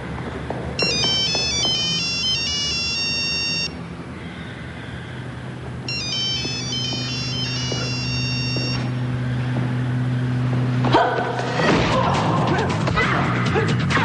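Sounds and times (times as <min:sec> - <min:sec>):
mobile phone ringtone beeping: 0:00.8 - 0:03.8, 0:05.9 - 0:08.9.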